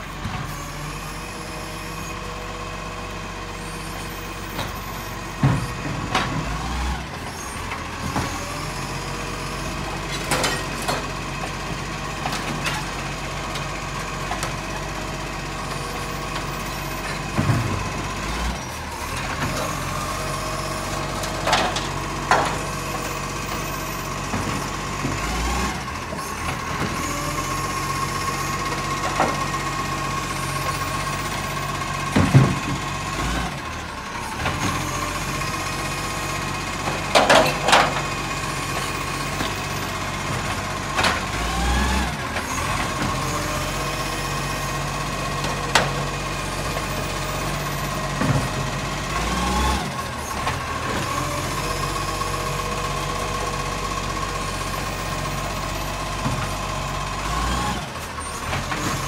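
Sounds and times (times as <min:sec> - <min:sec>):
garbage truck whining: 0:00.0 - 0:59.0
bins banging and clunking: 0:04.4 - 0:06.6, 0:16.4 - 0:18.1, 0:20.9 - 0:25.3, 0:30.4 - 0:33.0, 0:36.8 - 0:41.4, 0:46.7 - 0:48.8.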